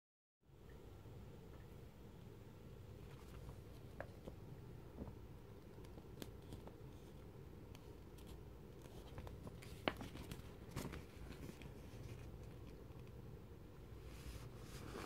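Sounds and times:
magazine paper rustling: 0:08.2 - 0:12.8.

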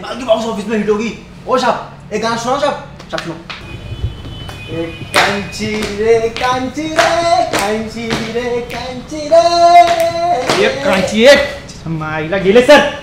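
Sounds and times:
sharp steady beat: 0:03.6 - 0:11.6.

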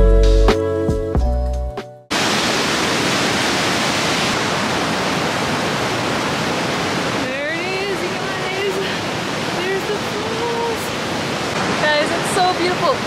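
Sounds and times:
background music: 0:00.0 - 0:02.0
whitewater rushing over boulders: 0:02.1 - 0:13.0.

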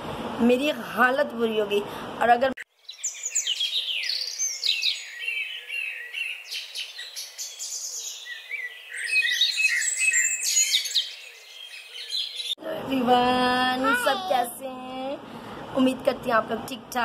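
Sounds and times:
small birds chirping and twittering: 0:02.7 - 0:12.6.

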